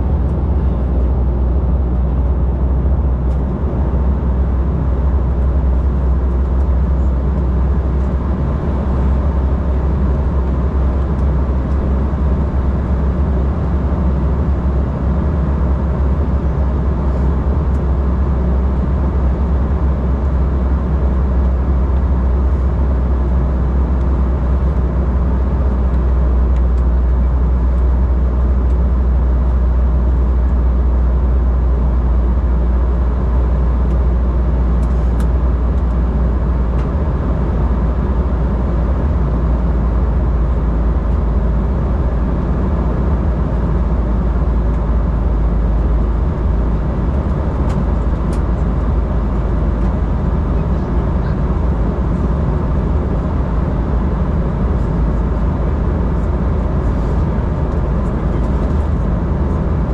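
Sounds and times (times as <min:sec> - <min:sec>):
jet engines droning: 0:30.0 - 0:59.9.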